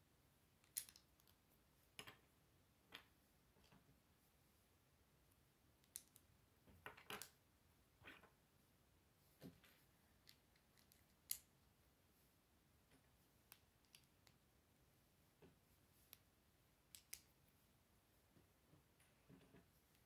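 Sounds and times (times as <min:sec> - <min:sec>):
plastic bricks clicking together: 0:00.6 - 0:01.4, 0:05.8 - 0:06.2, 0:10.2 - 0:11.5.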